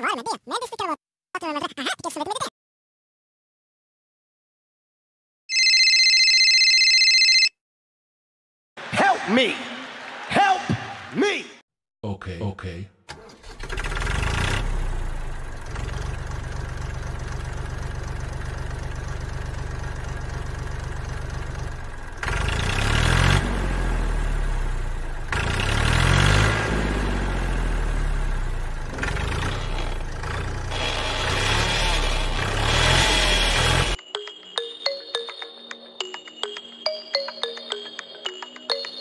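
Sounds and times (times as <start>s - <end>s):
tractor engine idling and revving: 13.1s - 34.0s.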